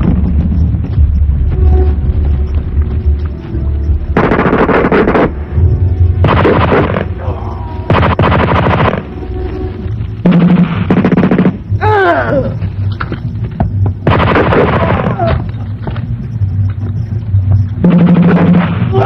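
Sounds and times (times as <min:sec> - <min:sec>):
background music: 0:00.0 - 0:19.0
automatic gunfire: 0:04.2 - 0:05.4, 0:06.2 - 0:07.1, 0:07.9 - 0:09.0, 0:10.2 - 0:11.6, 0:14.0 - 0:15.1, 0:17.8 - 0:18.8.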